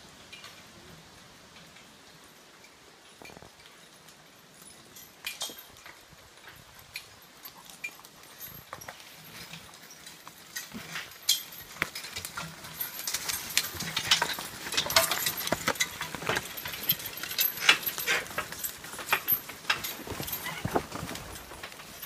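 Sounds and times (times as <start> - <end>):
metallic clanks and jangles: 3.1 - 22.0
horse hoofbeats: 6.0 - 22.0.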